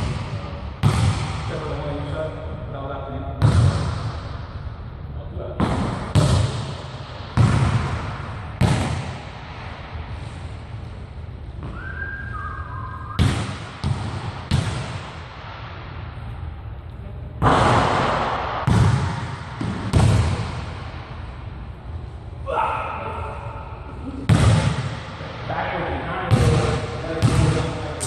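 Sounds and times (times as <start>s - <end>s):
basketball striking hoop: 0.0s - 1.6s, 3.4s - 4.2s, 5.6s - 9.3s, 13.2s - 15.2s, 17.4s - 20.9s, 24.3s - 25.1s, 26.3s - 27.8s
basketball bouncing on hardwood floor: 7.4s - 9.0s, 13.2s - 15.0s, 27.2s - 27.6s.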